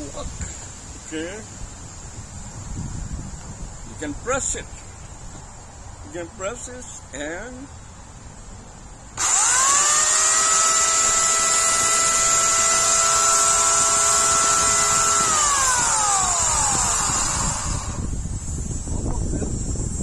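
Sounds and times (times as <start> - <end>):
electric chainsaw whining: 9.2 - 18.2.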